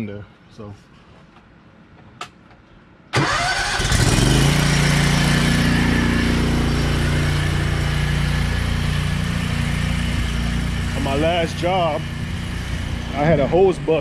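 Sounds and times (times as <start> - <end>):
pressure washer engine running: 3.8 - 14.0.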